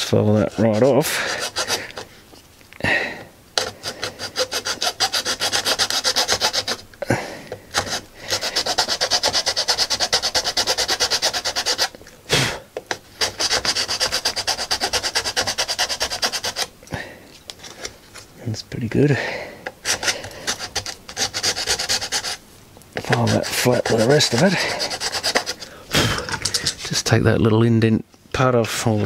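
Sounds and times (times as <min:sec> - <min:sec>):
hand file rasping on plastic: 0:00.0 - 0:02.1, 0:03.6 - 0:06.8, 0:07.7 - 0:12.0, 0:13.2 - 0:16.7, 0:19.6 - 0:22.4, 0:23.0 - 0:25.8.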